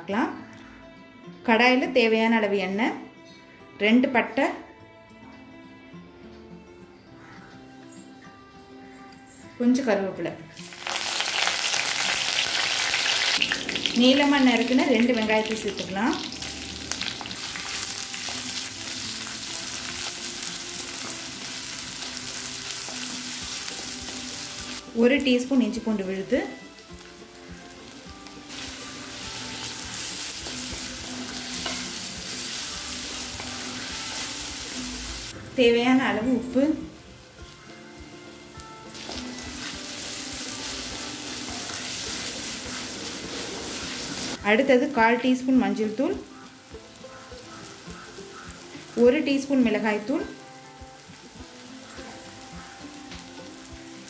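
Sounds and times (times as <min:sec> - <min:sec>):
onions sizzling in hot oil: 0:10.5 - 0:54.0
spatula stirring: 0:30.0 - 0:34.0.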